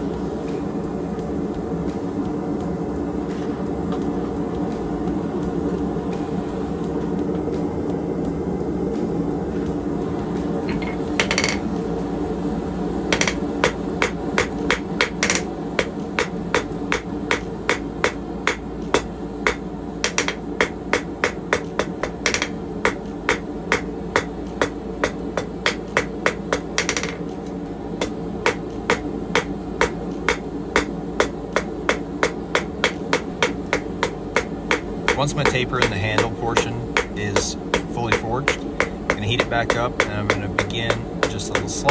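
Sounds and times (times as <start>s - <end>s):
hammer striking steel on anvil: 10.7s - 11.7s, 13.1s - 27.2s, 28.0s - 41.9s.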